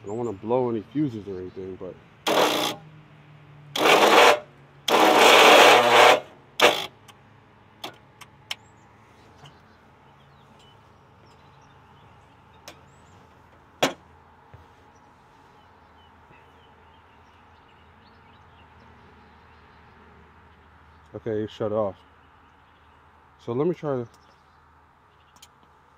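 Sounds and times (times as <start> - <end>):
starter cranking engine: 2.2 - 2.8, 3.7 - 7.1.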